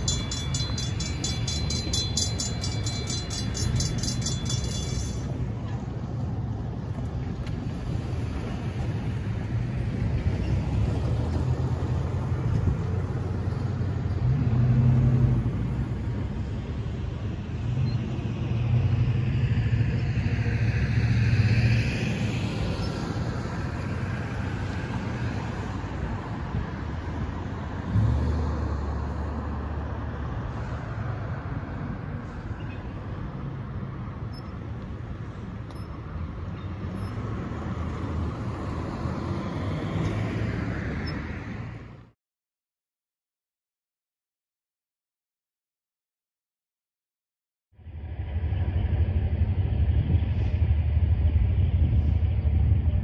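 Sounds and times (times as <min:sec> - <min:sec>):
cars driving past: 0:00.0 - 0:42.2
low engine drone: 0:47.8 - 0:53.0.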